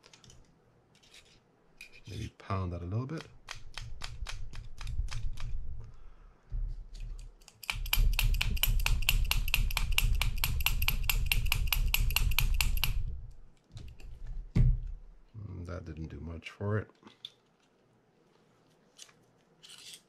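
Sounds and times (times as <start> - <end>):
wrench tapping on metal: 7.6 - 13.0.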